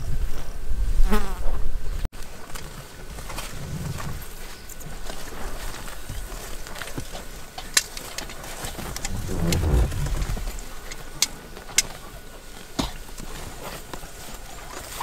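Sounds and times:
low rumble: 8.8 - 10.9.

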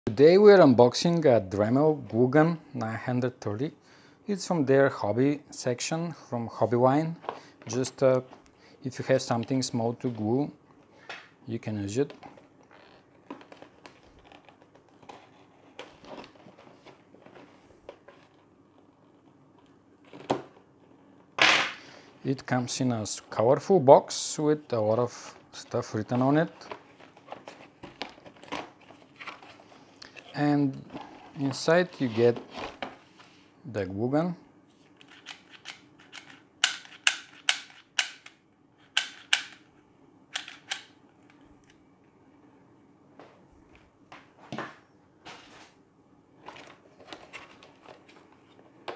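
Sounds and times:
cardboard rustling: 12.2 - 20.6, 26.1 - 29.9, 46.4 - 48.9.

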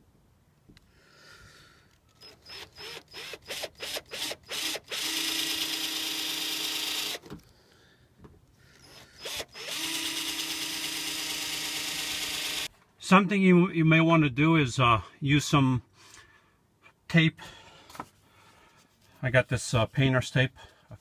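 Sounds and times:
cordless drill boring sheet metal: 2.2 - 7.2, 8.8 - 12.7.

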